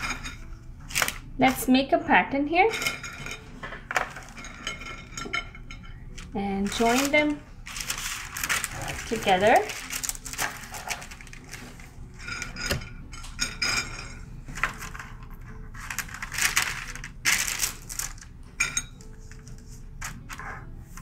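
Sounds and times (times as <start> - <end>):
paper rustling: 6.6 - 12.0, 14.6 - 18.3.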